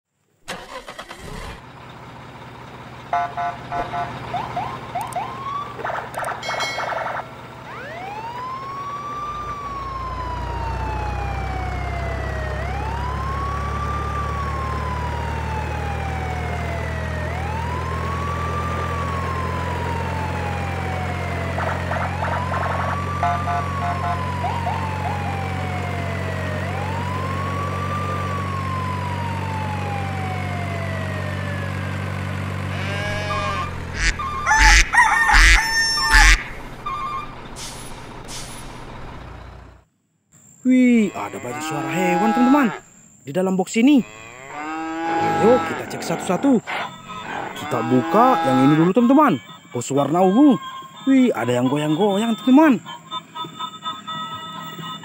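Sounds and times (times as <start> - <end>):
wailing siren: 3.1 - 37.5, 41.0 - 42.8, 43.9 - 55.0
low engine drone: 19.0 - 39.8.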